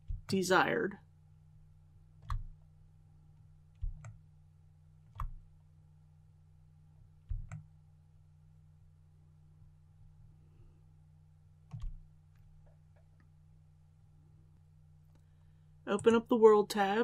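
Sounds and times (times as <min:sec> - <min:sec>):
faint low hum: 0:00.0 - 0:17.0
computer mouse clicking: 0:02.2 - 0:02.6, 0:03.7 - 0:04.2, 0:05.0 - 0:05.5, 0:07.2 - 0:07.7, 0:11.6 - 0:13.3.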